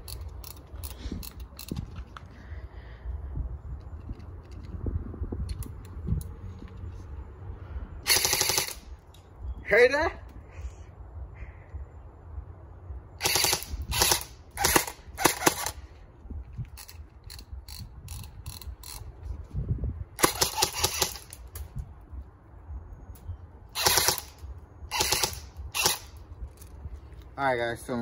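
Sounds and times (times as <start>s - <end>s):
airsoft rifle bursts: 8.1s - 8.8s, 13.2s - 15.8s, 20.2s - 21.4s, 23.8s - 26.2s.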